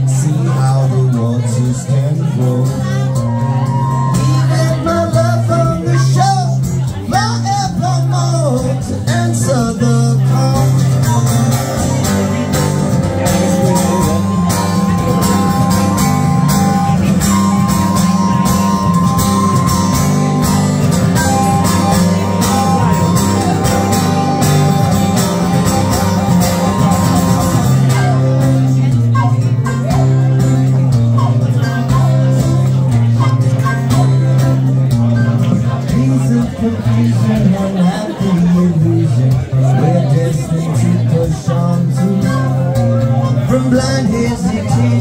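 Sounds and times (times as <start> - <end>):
acoustic guitar strummed: 0.0 - 45.0
wooden flute melody: 2.8 - 6.4, 10.8 - 37.2, 41.9 - 45.0.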